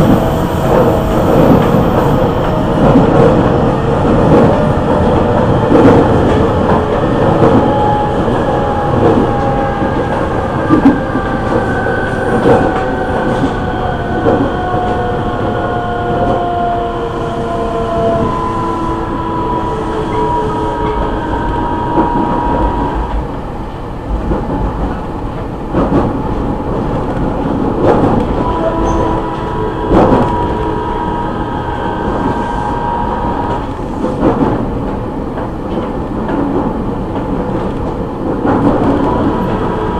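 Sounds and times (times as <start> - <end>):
rail-joint clacks: 0.0 - 16.5, 24.1 - 30.8, 33.3 - 39.9
train running rumble: 0.0 - 39.9.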